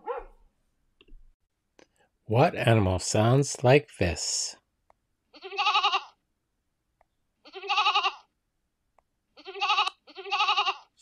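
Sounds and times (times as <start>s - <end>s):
goat bleating: 5.3s - 6.2s, 7.4s - 8.3s, 9.4s - 10.9s.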